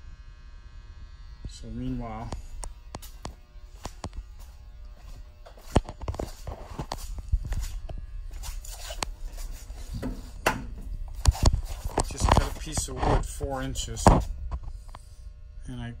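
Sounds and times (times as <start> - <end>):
steady low hum: 0.0 - 16.0
footsteps on hard floor: 2.4 - 13.4.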